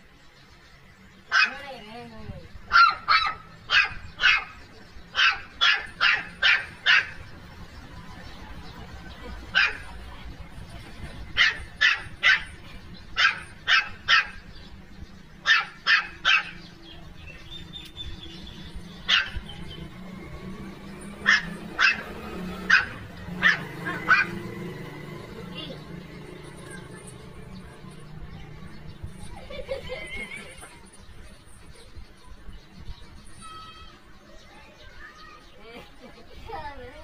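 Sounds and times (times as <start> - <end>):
puppy yapping: 2.7 - 7.2, 13.2 - 14.4, 19.0 - 19.4, 21.2 - 24.4.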